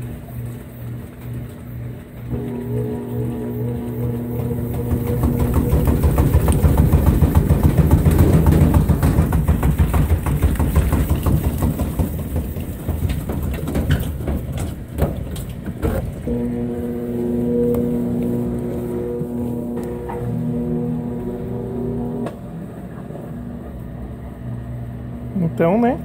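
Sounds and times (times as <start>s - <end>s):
washing machine tub rattling: 2.0s - 22.2s.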